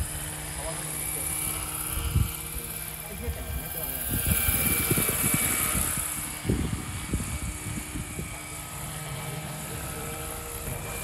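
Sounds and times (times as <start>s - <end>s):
model helicopter rotor whine: 0.0s - 11.0s
wind thumps on microphone: 4.1s - 8.4s.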